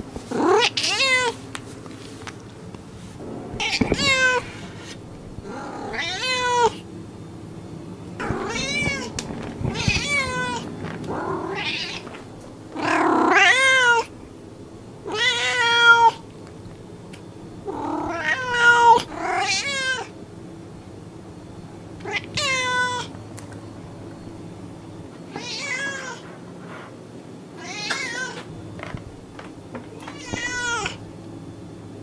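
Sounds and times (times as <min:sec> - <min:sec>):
cats meowing: 0:00.4 - 0:01.4, 0:03.4 - 0:06.8, 0:08.2 - 0:14.1, 0:15.1 - 0:16.2, 0:17.6 - 0:20.1, 0:22.0 - 0:23.1, 0:25.3 - 0:26.2, 0:27.6 - 0:28.5, 0:29.9 - 0:31.0.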